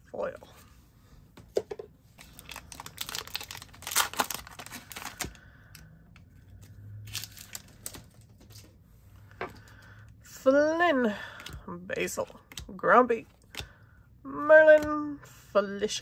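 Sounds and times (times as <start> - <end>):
plastic wrapper tearing and crinkling: 2.2 - 5.9, 7.1 - 8.6
cards rustling: 2.2 - 9.9.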